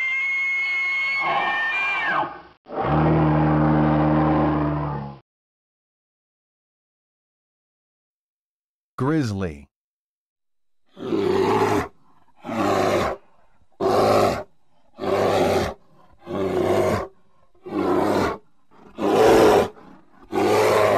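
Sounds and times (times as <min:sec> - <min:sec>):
grizzly bear roaring: 0:02.7 - 0:05.2, 0:10.9 - 0:20.9.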